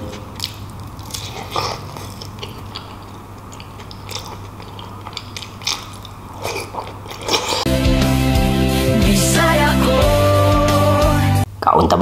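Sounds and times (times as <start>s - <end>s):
wet chewing of meat: 0.0s - 7.7s.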